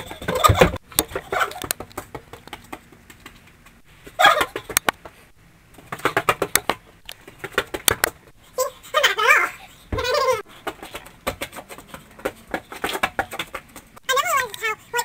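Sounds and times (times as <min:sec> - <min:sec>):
sharp clicks and knocks: 0:04.6 - 0:05.2, 0:05.8 - 0:08.2
boy shrieking and yelping: 0:08.6 - 0:10.5.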